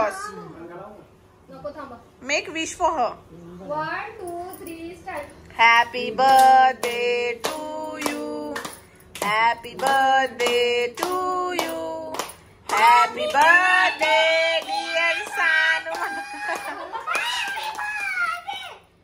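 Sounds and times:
group singing a birthday song: 5.5 - 16.9
hand claps: 6.2 - 18.4.

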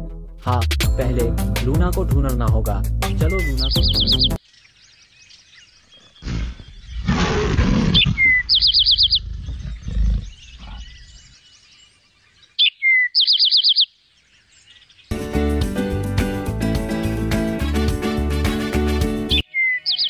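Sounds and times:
birds chirping trills: 3.0 - 15.2, 18.0 - 20.0
bear growling: 6.2 - 11.2.

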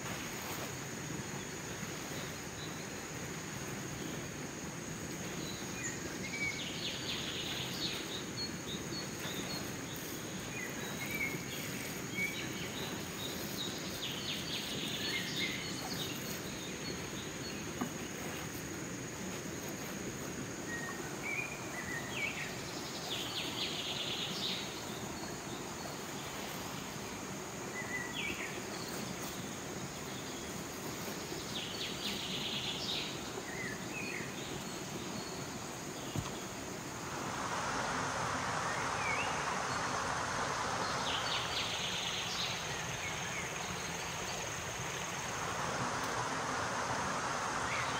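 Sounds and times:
high insect drone: 0.0 - 47.9
low background rush: 0.0 - 47.9
birds chirping: 5.2 - 18.6.

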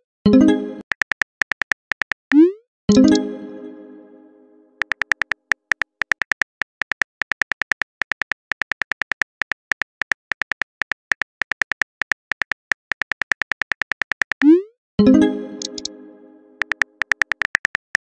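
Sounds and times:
phone keyboard tap clicks: 4.8 - 14.4, 15.6 - 15.9, 16.6 - 18.0.

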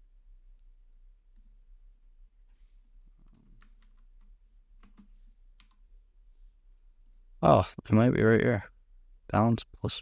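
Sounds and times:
keyboard and mouse clicks: 2.9 - 5.8.

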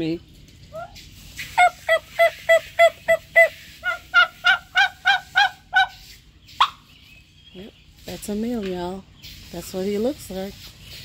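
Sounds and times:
turkeys yelping: 0.6 - 7.0.

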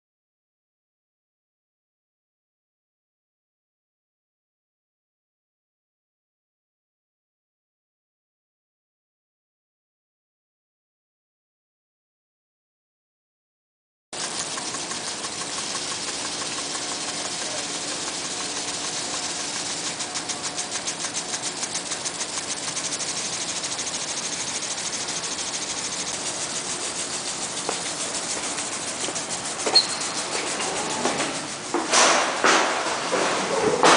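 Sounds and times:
mechanical running noise: 14.2 - 33.9.

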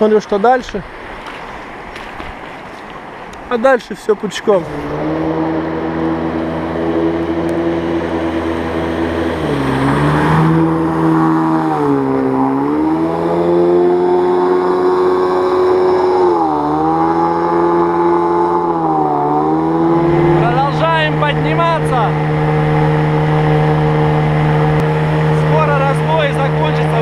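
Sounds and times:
outboard boat engine running: 4.4 - 27.0.

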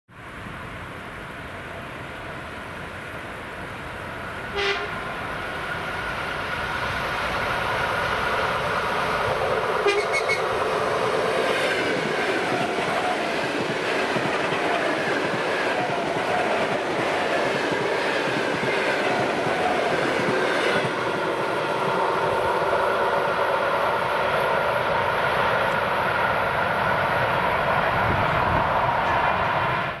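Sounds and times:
train rumbling past: 0.1 - 30.0
train horn blasts: 4.5 - 5.0, 9.8 - 10.5.

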